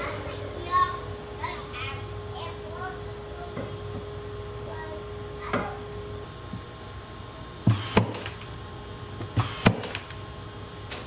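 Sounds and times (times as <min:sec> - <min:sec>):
steady low hum: 0:00.0 - 0:11.0
nail gun shots: 0:07.7 - 0:08.4, 0:09.4 - 0:10.1.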